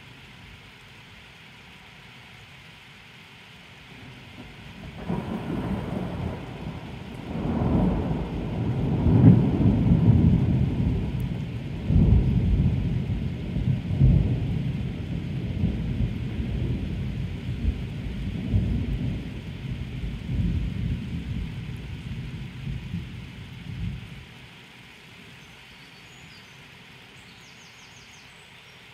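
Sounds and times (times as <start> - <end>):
rolling thunder: 4.4 - 24.1.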